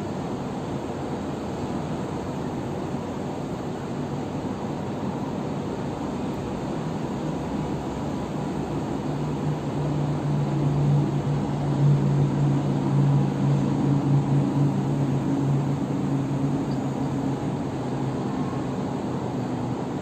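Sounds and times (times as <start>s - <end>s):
distant city traffic hum: 0.0s - 20.0s
vehicle engine drone: 6.0s - 20.0s.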